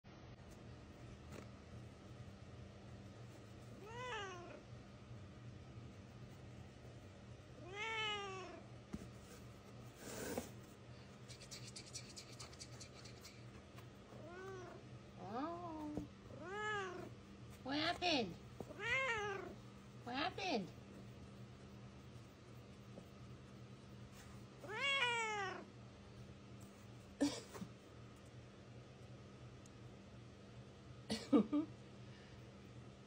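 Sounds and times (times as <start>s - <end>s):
cat meowing: 3.8s - 4.6s, 7.6s - 8.6s, 14.2s - 17.1s, 18.7s - 19.6s, 24.6s - 25.7s.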